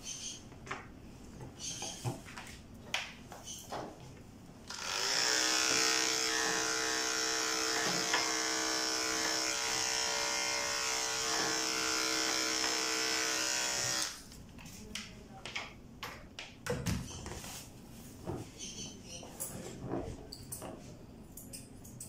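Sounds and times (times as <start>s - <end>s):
electric clippers buzzing: 4.7s - 14.2s.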